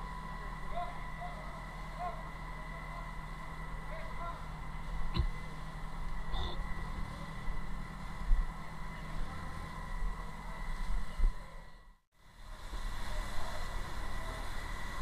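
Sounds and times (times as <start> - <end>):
pump engine rumbling with whine: 0.0 - 15.0.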